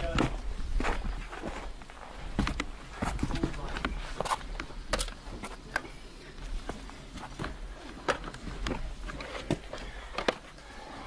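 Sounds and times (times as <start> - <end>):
knocks and scuffs on rock: 0.0 - 5.9.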